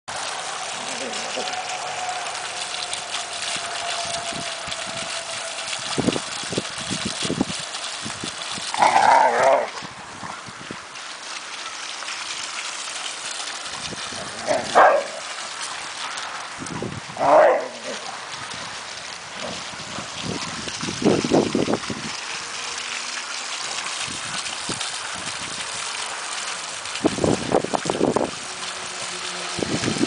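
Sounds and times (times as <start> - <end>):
fountain splashing: 0.1 - 30.0
dog barking: 14.5 - 15.2, 17.2 - 17.8.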